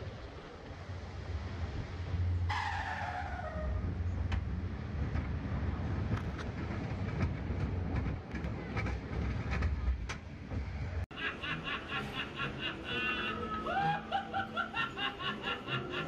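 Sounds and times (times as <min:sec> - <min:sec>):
roller coaster rumbling on track: 0:00.0 - 0:16.0
wheels clacking: 0:03.5 - 0:11.0
recorded mechanical laughter: 0:11.1 - 0:16.0.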